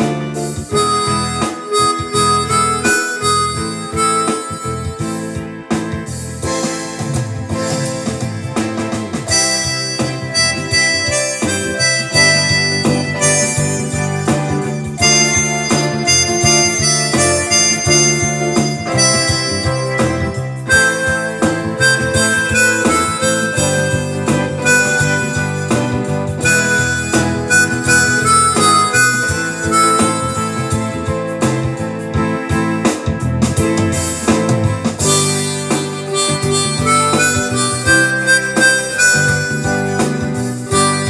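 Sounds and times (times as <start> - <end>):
reedy instrumental melody over chords: 0.0 - 41.0.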